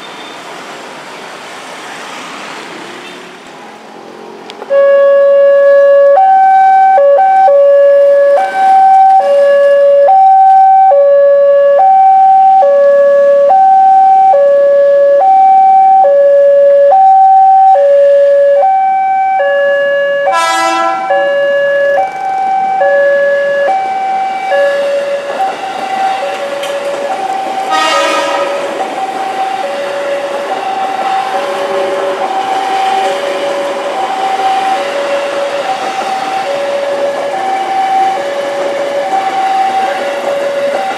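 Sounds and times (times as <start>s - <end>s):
electric train passing: 0.0s - 40.9s
level crossing two-tone alarm: 4.7s - 40.9s
train horn blast: 20.3s - 21.2s, 27.7s - 28.9s.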